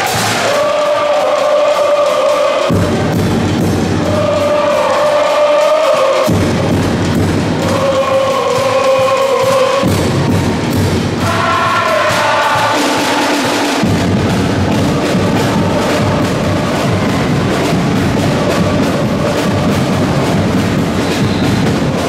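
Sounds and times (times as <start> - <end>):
drums beating steady rhythm: 0.0 - 22.0
voices singing a chant: 0.0 - 22.0.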